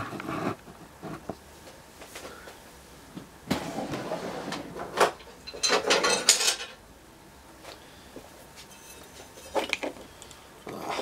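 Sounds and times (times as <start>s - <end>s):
metal parts clinking and rattling: 5.4s - 6.8s.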